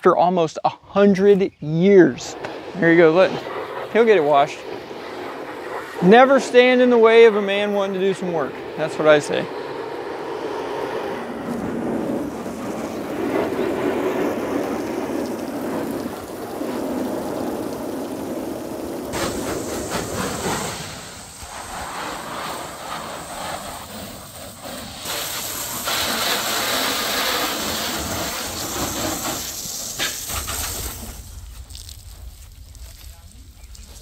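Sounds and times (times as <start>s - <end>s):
hose spraying water: 2.0s - 34.0s
water spattering on fabric: 14.5s - 21.1s, 22.1s - 33.2s.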